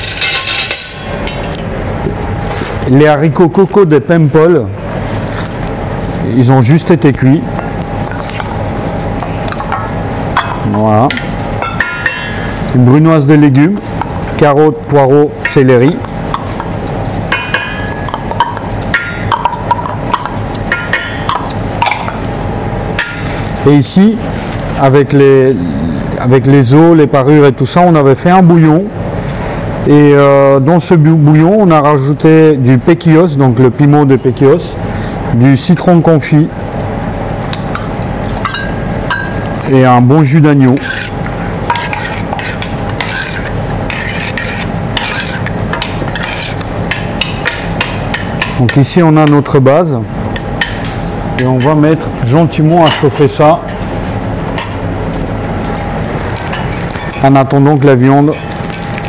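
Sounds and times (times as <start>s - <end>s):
metal spoon clinking on bowls: 0.0s - 1.4s, 9.5s - 12.4s, 17.4s - 22.2s, 37.7s - 39.7s
steady low hum: 0.0s - 59.0s
metal spoon stirring in saucepan: 7.5s - 12.7s, 15.4s - 22.3s, 37.5s - 49.4s, 58.0s - 59.0s.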